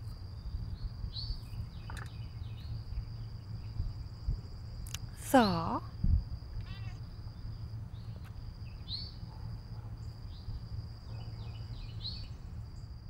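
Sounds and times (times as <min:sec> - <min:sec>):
low steady rumble: 0:00.0 - 0:13.0
insect trilling: 0:00.3 - 0:04.1, 0:04.8 - 0:09.3
bird chirps: 0:00.4 - 0:03.9, 0:06.8 - 0:12.9.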